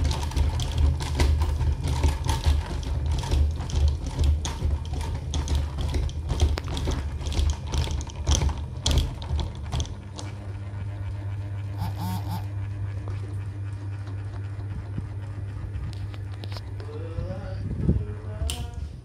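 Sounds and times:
clicks and rattles: 0:00.0 - 0:10.4
ceiling fan motor humming: 0:00.0 - 0:19.0.

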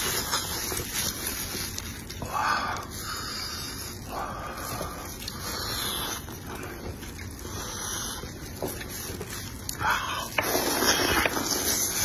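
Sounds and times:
slurping noodles: 0:05.0 - 0:12.0.

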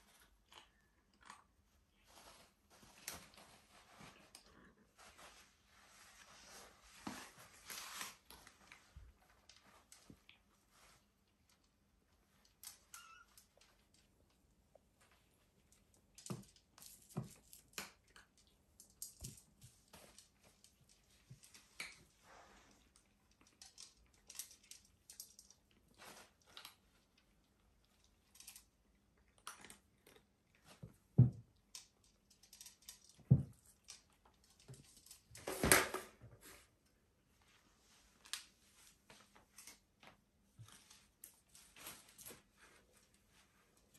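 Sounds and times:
kittens scuffling: 0:01.8 - 0:36.8.

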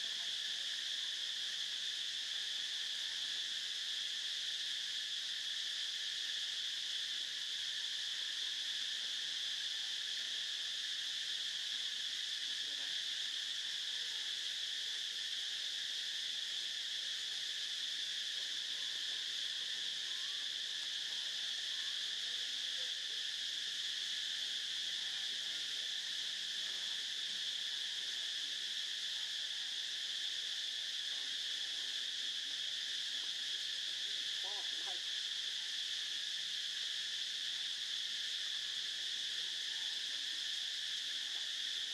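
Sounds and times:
insects buzzing: 0:00.0 - 0:41.9.

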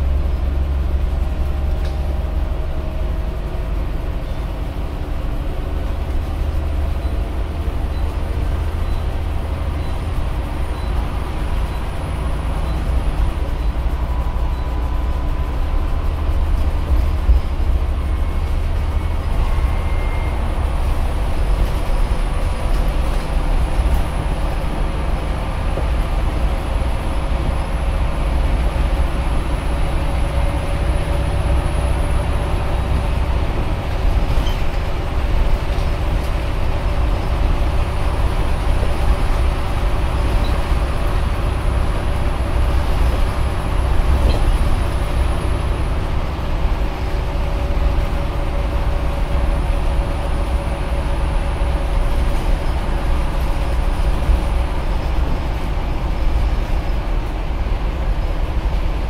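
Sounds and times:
bus engine drone: 0:00.0 - 0:59.0
road noise: 0:00.0 - 0:59.0.

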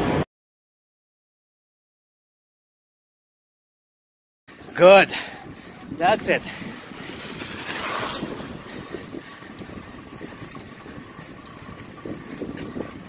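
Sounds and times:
slow-moving vehicle rumble and hiss: 0:04.8 - 0:13.0.

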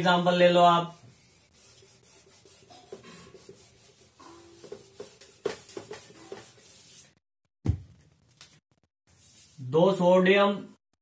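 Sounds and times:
whiteboard being wiped: 0:00.0 - 0:07.2, 0:09.1 - 0:09.6.

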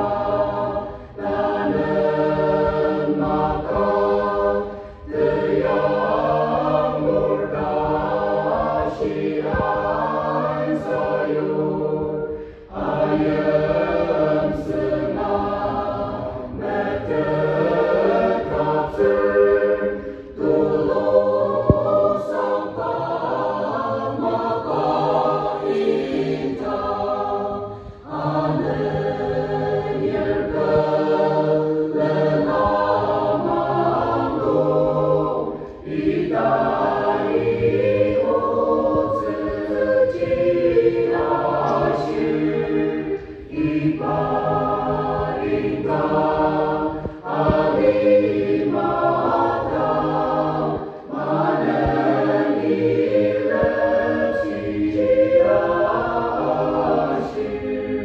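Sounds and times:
mixed choir singing a hymn: 0:00.0 - 0:58.0.

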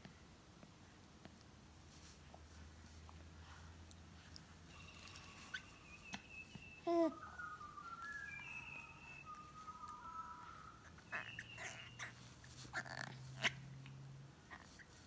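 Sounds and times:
birds chirping: 0:04.7 - 0:12.8.

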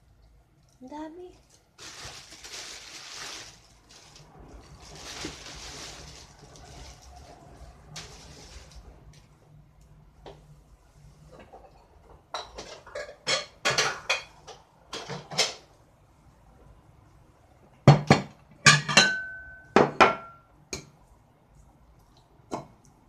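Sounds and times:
dishes clattering: 0:11.4 - 0:15.6, 0:17.9 - 0:20.9.

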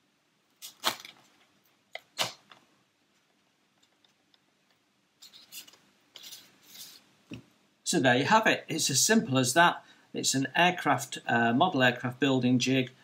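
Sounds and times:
soft rustling: 0:03.1 - 0:07.4.

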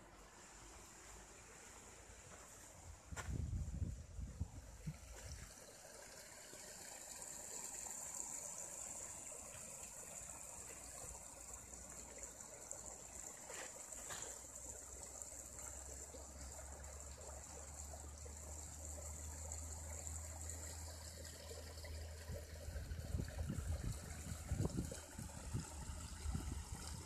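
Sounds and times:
brook trickling: 0:00.0 - 0:27.0.

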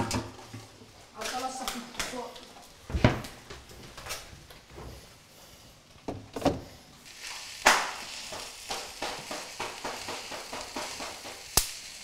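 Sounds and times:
utensil knocking against a pan: 0:08.3 - 0:11.5.

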